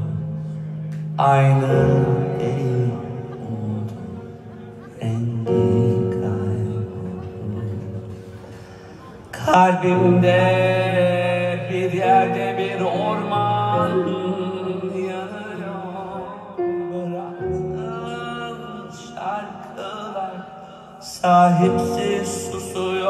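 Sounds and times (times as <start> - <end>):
man singing with vibrato: 0.0 - 8.2, 9.2 - 23.0
low instrumental backing: 0.0 - 20.3.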